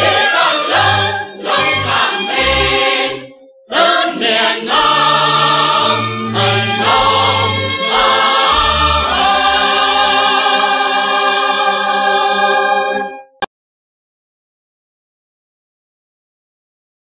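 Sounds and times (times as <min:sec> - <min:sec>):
choir singing: 0:00.0 - 0:13.3.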